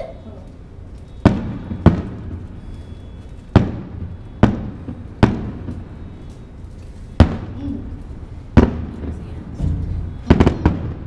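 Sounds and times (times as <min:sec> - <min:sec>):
firework shells booming: 0:01.2 - 0:02.7, 0:03.4 - 0:06.2, 0:07.1 - 0:11.0.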